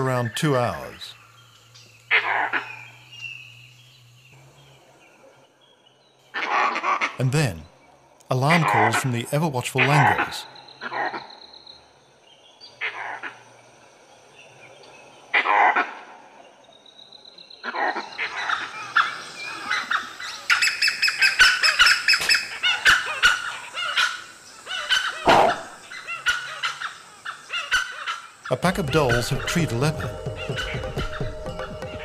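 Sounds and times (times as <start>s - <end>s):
wild dogs barking: 6.3s - 7.2s, 12.8s - 13.5s, 15.3s - 16.4s, 17.6s - 29.2s.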